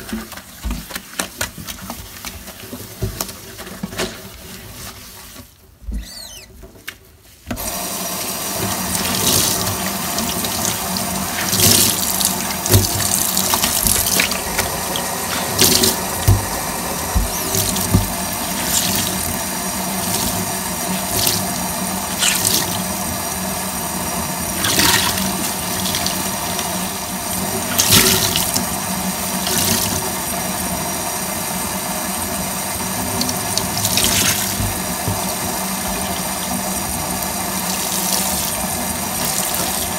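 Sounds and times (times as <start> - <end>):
tap water running into sink: 7.5 - 39.9
wet sponge squelching: 8.6 - 23.0.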